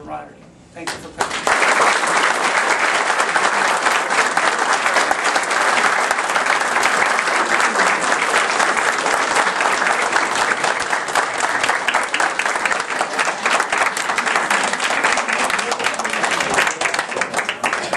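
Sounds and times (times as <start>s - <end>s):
crowd applauding: 0.8s - 17.9s.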